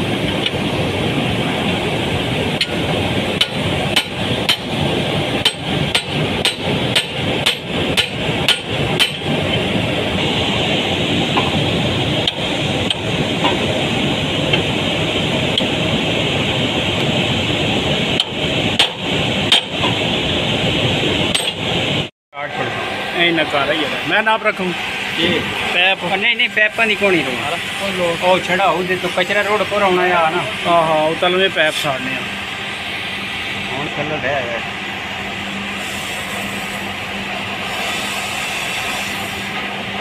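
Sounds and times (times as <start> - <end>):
steady mechanical noise: 0.0 - 40.0
hammer striking metal bolt: 5.4 - 9.3.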